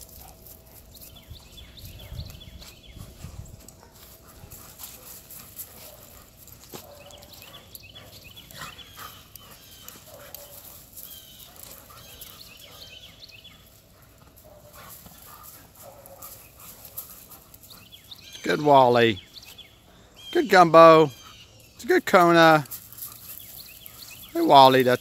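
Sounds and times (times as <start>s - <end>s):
dog paws scuffing dirt: 0.0s - 18.5s.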